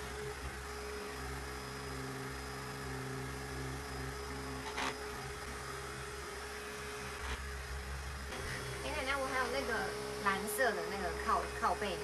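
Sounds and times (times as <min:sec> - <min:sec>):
vacuum motor hum: 0:00.0 - 0:12.0.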